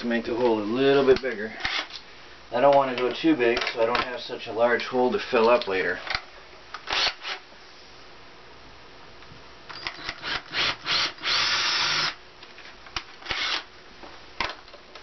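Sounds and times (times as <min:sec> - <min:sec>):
cordless drill boring into wood: 0:01.6 - 0:01.9, 0:06.9 - 0:07.4, 0:09.8 - 0:12.2, 0:13.2 - 0:13.7
drill clicks: 0:01.6 - 0:02.0, 0:06.8 - 0:07.4, 0:09.7 - 0:12.2, 0:13.0 - 0:13.7.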